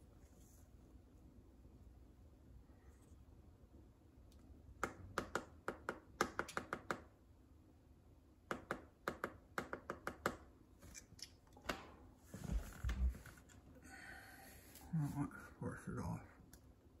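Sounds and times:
laptop keyboard clicks: 4.8s - 7.1s.

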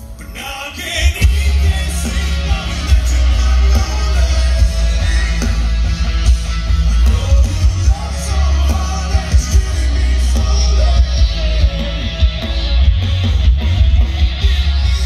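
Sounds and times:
person singing: 0.0s - 5.9s, 6.9s - 12.8s
heavy rock band playing: 0.0s - 15.0s.

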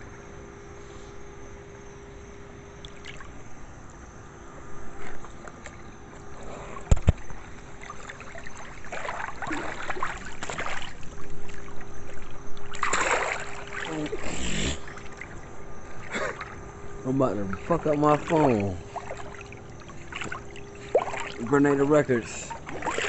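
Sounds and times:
steady low hum: 0.0s - 23.0s
water splashing and trickling: 2.8s - 3.5s, 6.8s - 23.0s.

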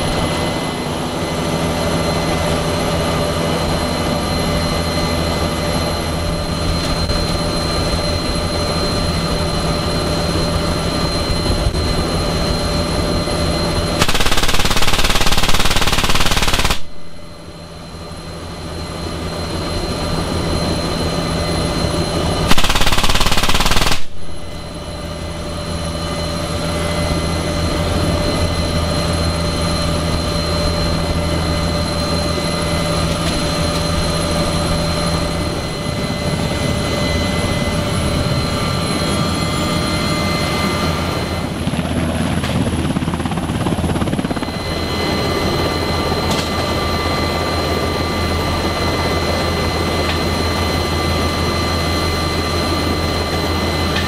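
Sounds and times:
helicopter rotor hum: 0.0s - 54.0s
helicopter turbine whine: 0.0s - 54.0s
heavy machine gun bursts: 14.0s - 17.0s, 22.5s - 24.2s.

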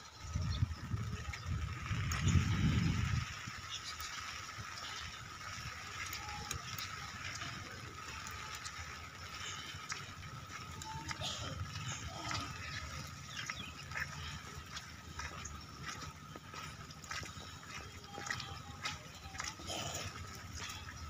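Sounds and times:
low outdoor rumble: 0.0s - 21.0s
footsteps on wet stone: 0.2s - 21.0s.

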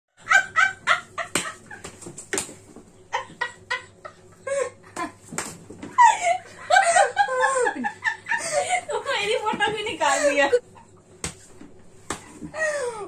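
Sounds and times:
girl and woman laughing: 6.0s - 9.3s.

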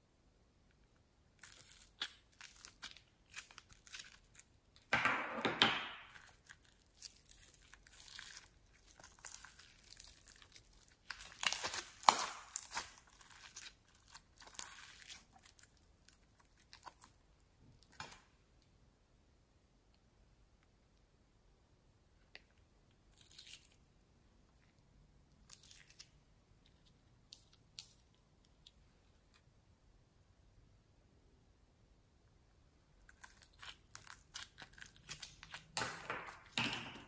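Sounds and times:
foam slime crackling and tearing: 1.4s - 4.5s, 6.1s - 17.2s, 33.1s - 35.8s.

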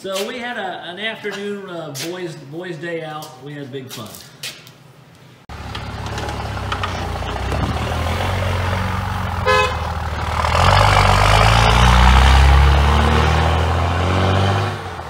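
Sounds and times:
diesel truck engine accelerating: 5.5s - 15.0s
short horn toot: 9.4s - 9.8s.

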